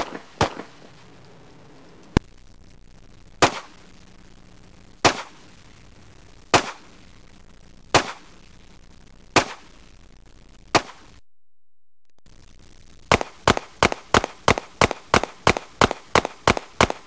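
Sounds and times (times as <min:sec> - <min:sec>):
pistol shots with echo: 0:00.0 - 0:00.8, 0:13.1 - 0:17.0.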